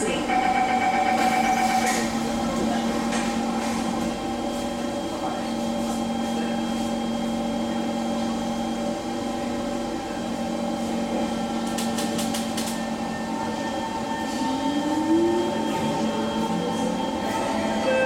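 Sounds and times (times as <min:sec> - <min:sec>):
train equipment humming: 0:00.0 - 0:18.0
train rising whine: 0:12.5 - 0:18.0.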